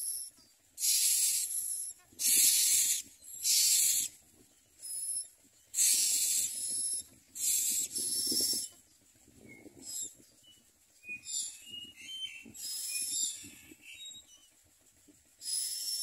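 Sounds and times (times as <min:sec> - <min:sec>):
nestlings begging with hissing rasps: 0:00.0 - 0:08.8, 0:09.8 - 0:10.2, 0:11.2 - 0:11.7, 0:12.4 - 0:13.8, 0:15.4 - 0:16.0.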